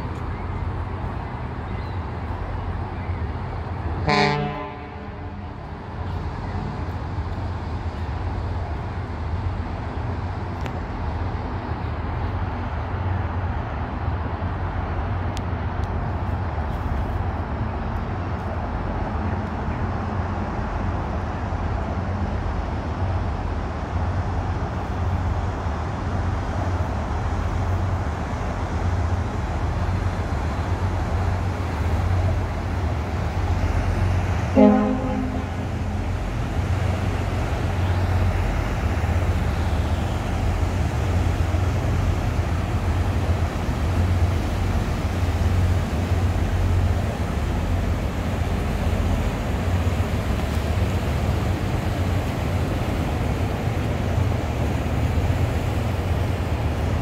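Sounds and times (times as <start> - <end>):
deep horn blast: 4.0 - 5.4, 34.5 - 36.3.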